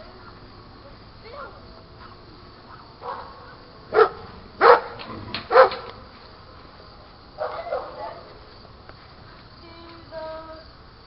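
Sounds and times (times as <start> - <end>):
dog barking: 2.7 - 5.9, 7.4 - 8.2.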